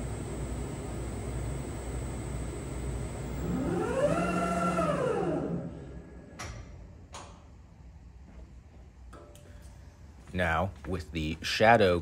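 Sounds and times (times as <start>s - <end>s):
lathe motor whine: 0.0s - 6.0s.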